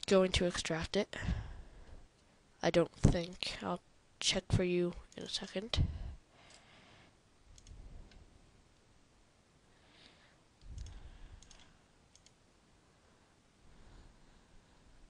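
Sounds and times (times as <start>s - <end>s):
faint computer mouse clicks: 10.6s - 12.4s.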